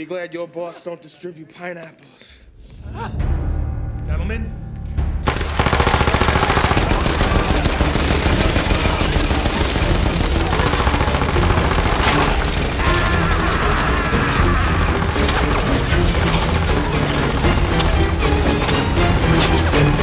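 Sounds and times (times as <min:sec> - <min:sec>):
machine-gun fire: 0:05.2 - 0:20.0.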